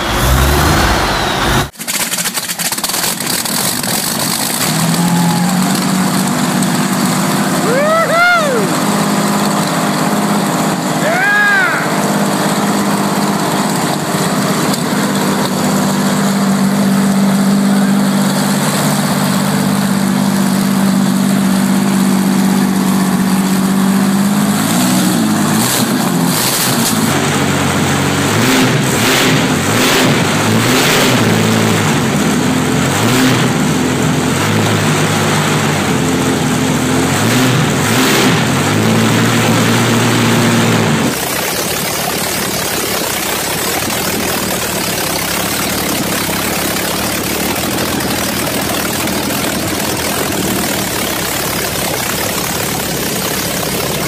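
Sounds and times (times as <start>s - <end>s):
sharp engine cracks: 0.0s - 7.6s
tank engine running: 0.0s - 54.0s.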